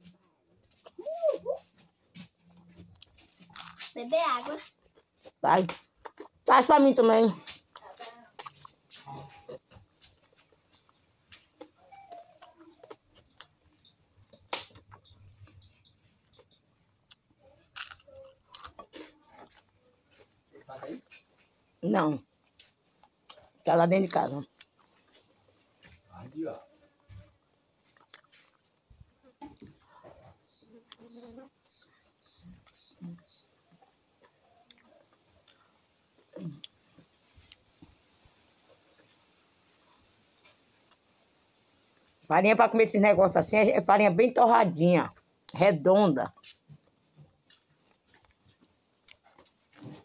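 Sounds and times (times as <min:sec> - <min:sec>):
crunchy chewing: 0:00.0 - 0:42.1, 0:46.3 - 0:50.0
bird calling high note: 0:30.4 - 0:33.5.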